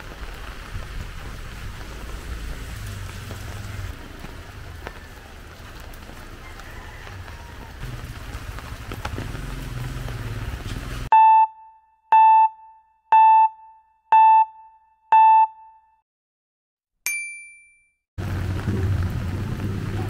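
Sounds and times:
rain: 0:00.0 - 0:11.1, 0:18.2 - 0:20.0
street noise: 0:00.0 - 0:11.1, 0:18.2 - 0:20.0
electronic beeps: 0:11.2 - 0:15.8.

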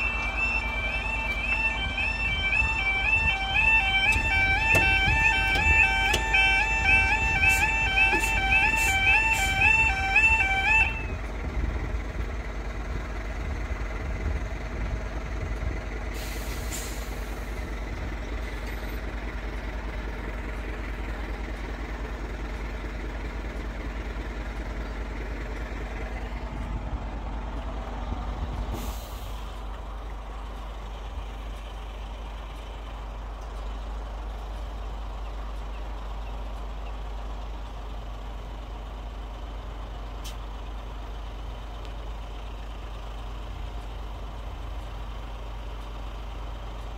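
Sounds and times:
lorry engine idling: 0:00.0 - 0:46.9
air brake hissing: 0:07.4 - 0:09.6, 0:16.1 - 0:17.7, 0:28.7 - 0:29.6.

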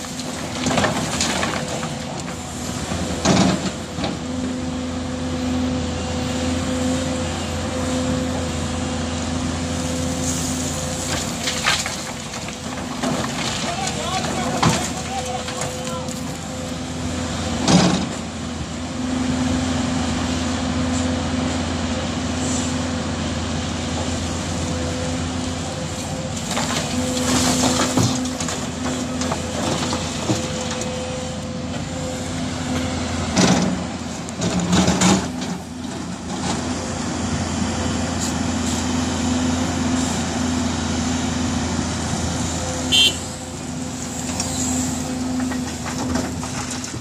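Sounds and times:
excavator diesel engine: 0:00.0 - 0:47.0
excavator bursts of noise: 0:42.8 - 0:43.4.

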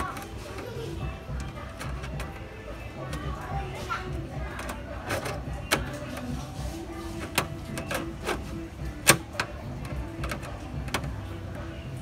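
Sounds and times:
irregular clicks and knocks: 0:07.2 - 0:11.6.

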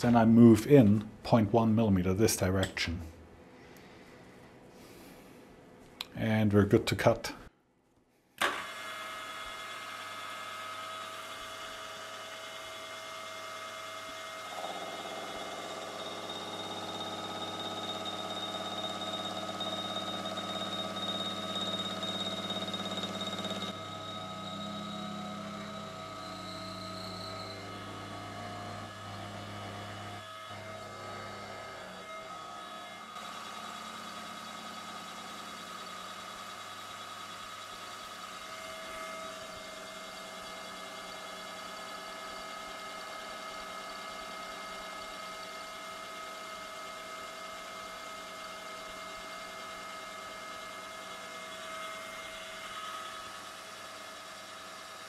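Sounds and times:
milling machine cutting metal: 0:14.4 - 0:37.5.

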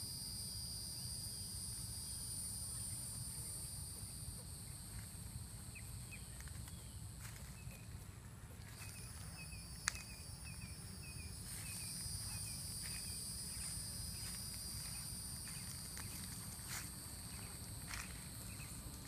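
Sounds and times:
high-pitched insect buzzing: 0:00.0 - 0:08.0, 0:08.7 - 0:19.0
small repeated chirps: 0:08.7 - 0:18.9.

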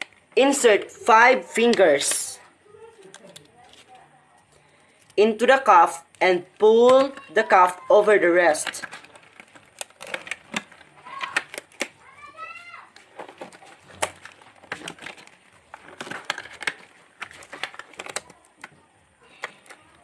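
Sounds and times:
glove crinkling and snapping: 0:08.8 - 0:20.0.

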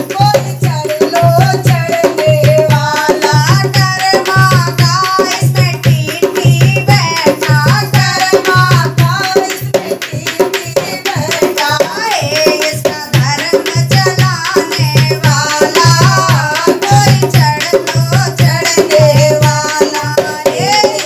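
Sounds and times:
hand drum playing: 0:00.0 - 0:21.0
women singing devotional song: 0:00.0 - 0:21.0.

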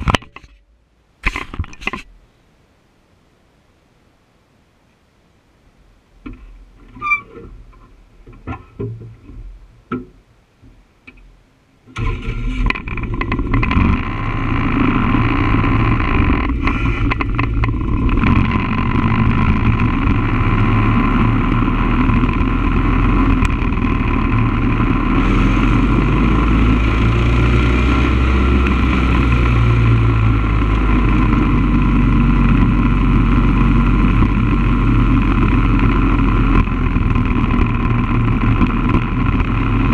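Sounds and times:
motorcycle engine running: 0:12.6 - 0:39.9.

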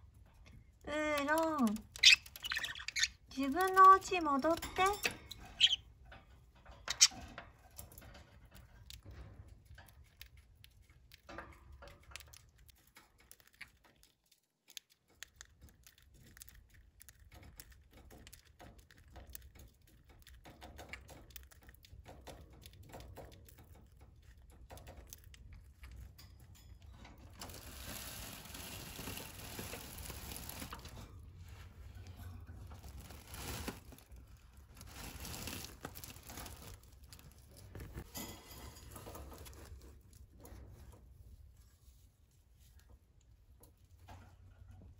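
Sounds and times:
rustling and crinkling: 0:00.0 - 0:44.9
parrots clicking and tapping: 0:00.2 - 0:31.2
sharp loud parrot chirp: 0:02.0 - 0:03.1.

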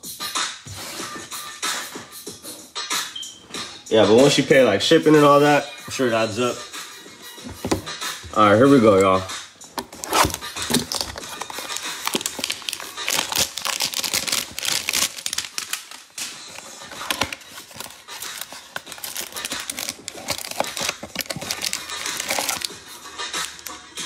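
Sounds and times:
cards being handled: 0:07.4 - 0:23.8
plastic wrapping tearing and crinkling: 0:09.8 - 0:23.7.

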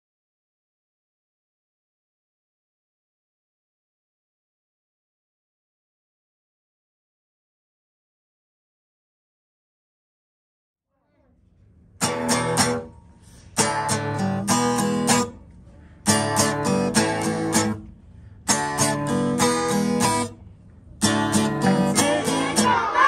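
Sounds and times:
strummed acoustic guitar: 0:12.0 - 0:15.4, 0:16.0 - 0:20.4, 0:21.0 - 0:23.0.

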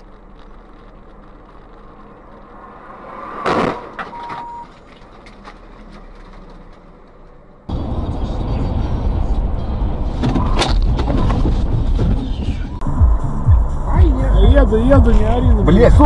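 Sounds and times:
in-car noise: 0:00.0 - 0:16.0
loud impact bang: 0:02.4 - 0:04.8
short steady beep: 0:04.1 - 0:04.7.

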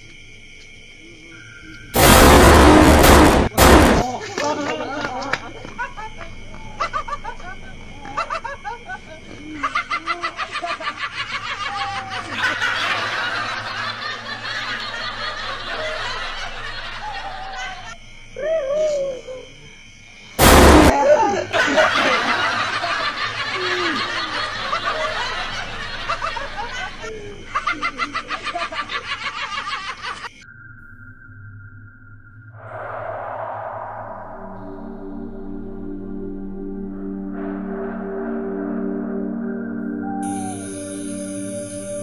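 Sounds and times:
loud bang: 0:02.0 - 0:04.2, 0:20.4 - 0:21.0, 0:32.6 - 0:35.9
hard laughter: 0:04.0 - 0:18.0, 0:20.8 - 0:30.3.

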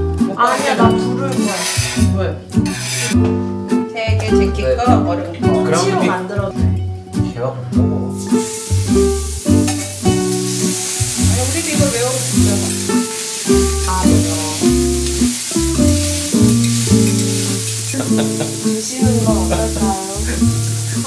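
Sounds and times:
background music with guitar: 0:00.0 - 0:21.0
meat sizzling on a griddle: 0:00.5 - 0:03.2, 0:08.1 - 0:21.0.

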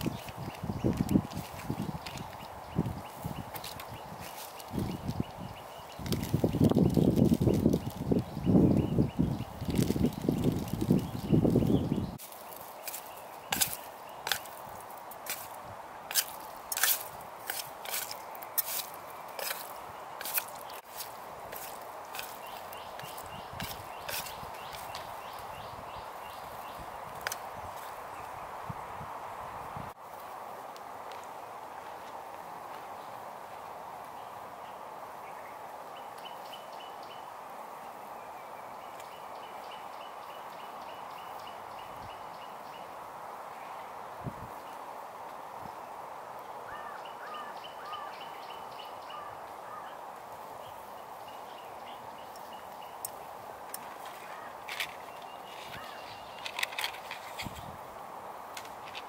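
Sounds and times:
faint steady hiss: 0:00.0 - 0:59.0.

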